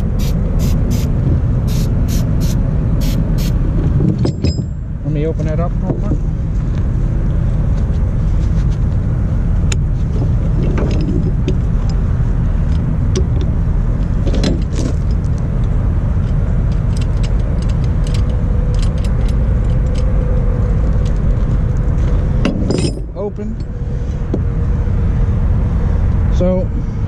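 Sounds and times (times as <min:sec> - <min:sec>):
steady low rumble: 0:00.0 - 0:27.0
chain binder clicks and metallic taps: 0:14.3 - 0:20.1.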